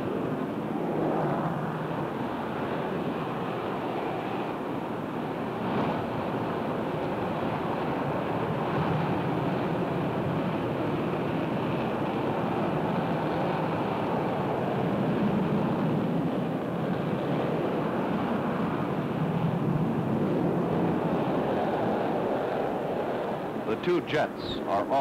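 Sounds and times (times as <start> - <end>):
jet engines at takeoff power: 0.0 - 25.0.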